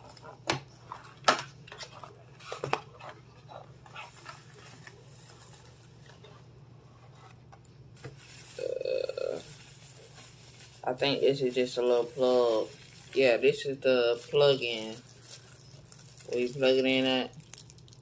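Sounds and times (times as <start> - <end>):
cardboard and plastic rustling: 0.0 - 17.4.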